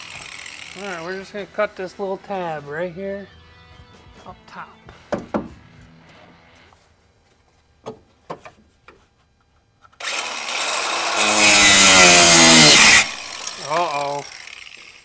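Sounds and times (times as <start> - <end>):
cutoff wheel cutting metal: 0.0 - 1.2, 10.0 - 15.0.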